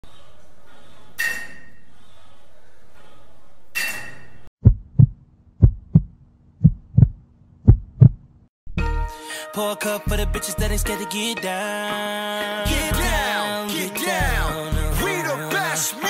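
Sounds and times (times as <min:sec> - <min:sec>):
deep double thumps: 0:04.6 - 0:08.8.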